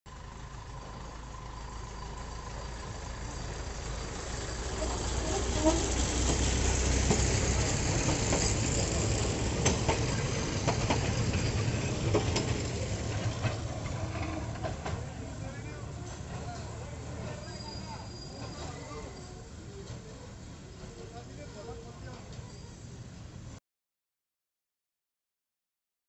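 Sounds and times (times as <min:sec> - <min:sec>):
small locomotive humming: 0:00.1 - 0:23.6
train wheels clicking over rail joints: 0:00.6 - 0:20.2.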